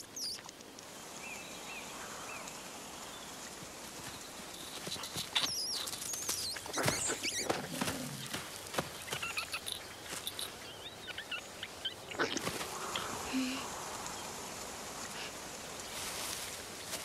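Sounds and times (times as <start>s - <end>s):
outdoor hiss: 0.0s - 10.8s, 11.4s - 17.0s
fox digging in loose earth: 3.9s - 10.6s.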